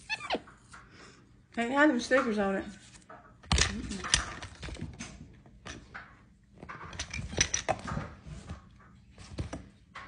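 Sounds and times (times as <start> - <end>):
plastic toy tools clattering: 3.4 - 5.9, 6.7 - 8.1.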